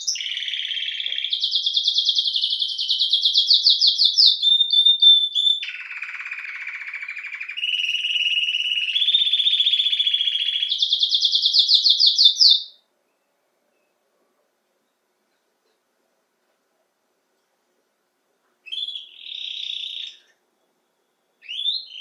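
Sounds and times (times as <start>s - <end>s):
canary singing trills: 0.0s - 14.0s, 18.6s - 22.0s.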